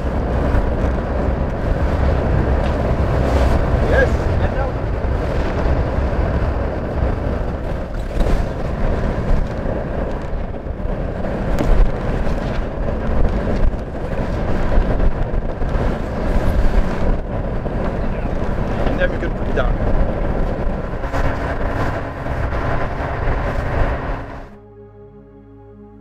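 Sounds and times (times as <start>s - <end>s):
wind buffeting microphone: 0.0s - 24.6s
knocks of sail cloth and rope: 7.6s - 10.5s, 11.2s - 23.6s.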